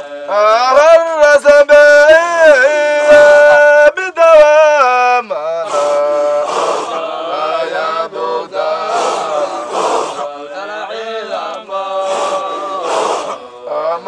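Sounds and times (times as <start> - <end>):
man singing wavering melody: 0.0 - 6.5, 13.4 - 14.0
men chanting in group: 0.0 - 14.0.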